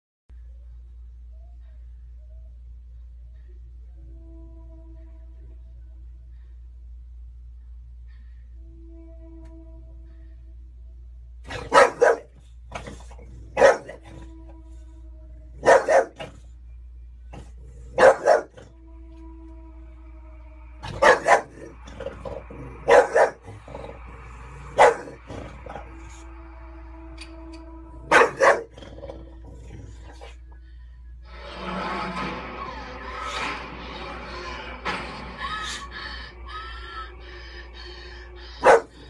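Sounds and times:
dog barking: 11.5 - 14.2, 15.6 - 16.4, 17.4 - 18.6, 20.8 - 21.8, 22.8 - 23.6, 24.6 - 25.8, 28.0 - 28.8, 38.6 - 39.0.

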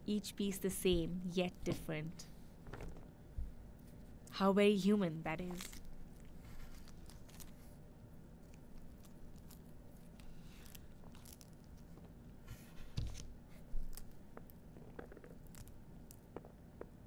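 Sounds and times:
fruit husk tearing and crackling: 5.3 - 17.0.

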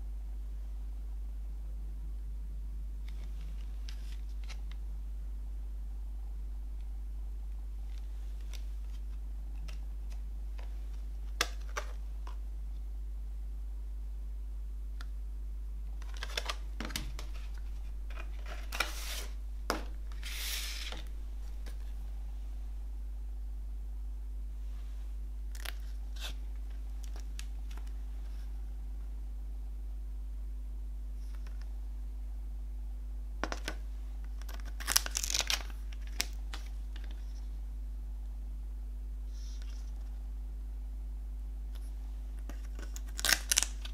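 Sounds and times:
steady low hum: 0.0 - 43.9
cardboard and paper rustling: 16.0 - 22.0
paper sliding rustle: 16.0 - 22.0.

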